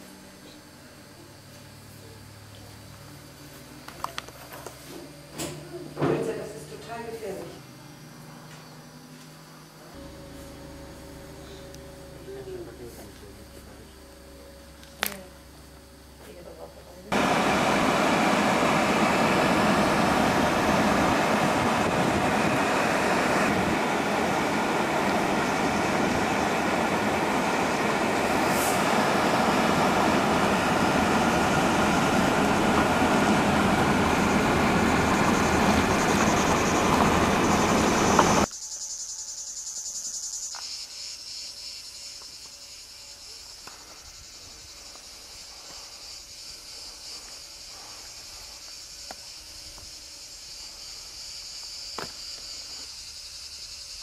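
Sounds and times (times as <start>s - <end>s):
insects chirring: 0.0s - 54.0s
loud rushing noise: 17.1s - 38.5s.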